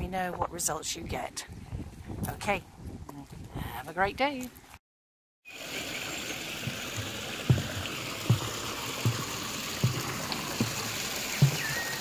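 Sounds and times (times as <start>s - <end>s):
running water rushing: 5.5s - 12.0s
soft low thump: 7.5s - 10.8s, 11.4s - 11.8s.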